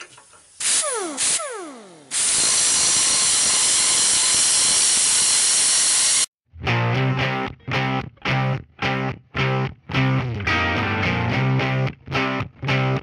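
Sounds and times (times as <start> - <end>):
angle grinder cutting steel: 0.6 - 6.3
grinder motor winding down: 0.6 - 6.3.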